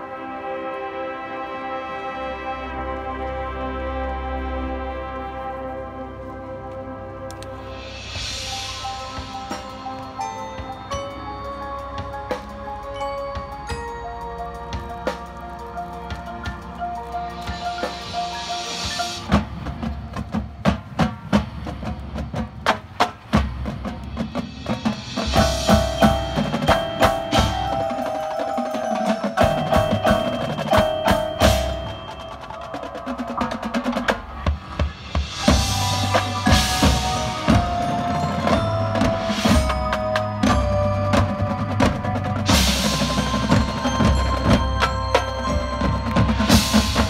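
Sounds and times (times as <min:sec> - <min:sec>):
marching band playing: 0:00.0 - 0:47.0
mallet percussion: 0:07.6 - 0:22.2, 0:23.3 - 0:47.0
drum strikes and rolls: 0:16.0 - 0:47.0.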